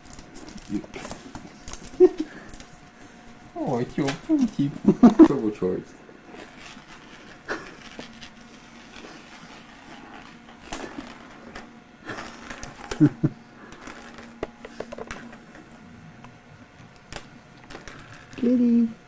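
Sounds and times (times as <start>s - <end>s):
plastic bags rustling: 0.0s - 5.5s
faint steady hum: 0.0s - 19.0s.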